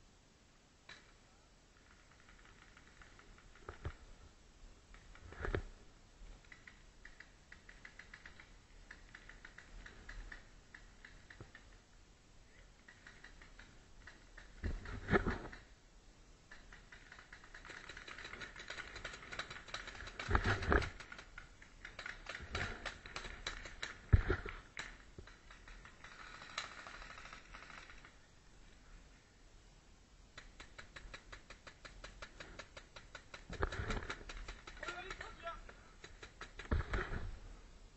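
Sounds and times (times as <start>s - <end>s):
air guns firing clicks and pops: 16.5s - 28.1s, 30.3s - 37.3s.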